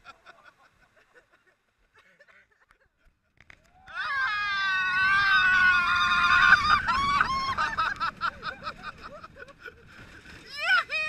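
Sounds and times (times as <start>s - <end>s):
riders screaming: 3.8s - 8.2s
wind on microphone: 4.2s - 10.5s.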